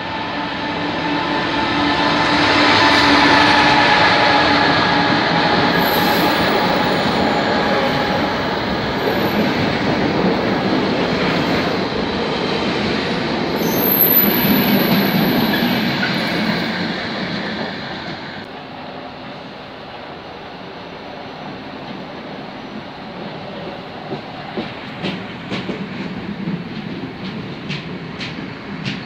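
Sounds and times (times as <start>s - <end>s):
diesel locomotive engine: 0.0s - 29.0s
high wheel squeal: 2.8s - 9.6s, 13.6s - 16.8s.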